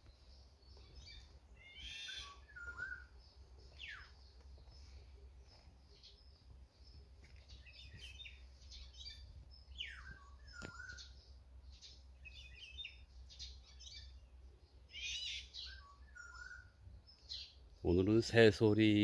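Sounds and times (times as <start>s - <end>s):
birds singing and chirping: 0.0s - 19.0s
falling bird whistle: 1.6s - 3.1s, 9.8s - 11.1s.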